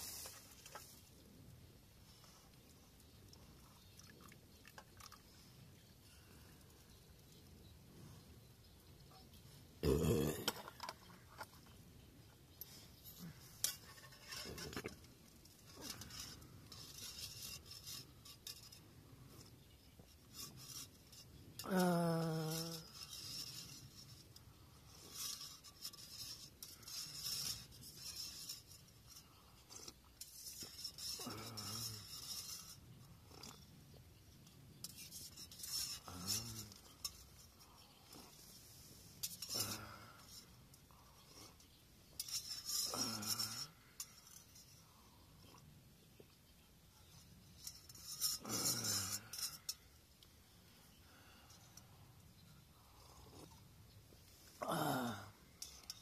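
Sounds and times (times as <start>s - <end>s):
utensil scraping metal cup: 13.6s - 33.8s, 34.4s - 40.6s, 41.2s - 44.8s, 47.1s - 49.8s, 55.6s - 56.0s.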